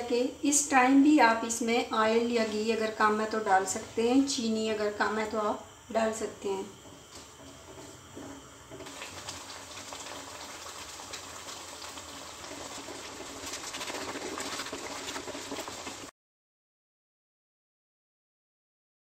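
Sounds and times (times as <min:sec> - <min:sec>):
food sizzling in a pan: 0:00.0 - 0:16.1
wooden spatula scraping pan: 0:06.8 - 0:09.3.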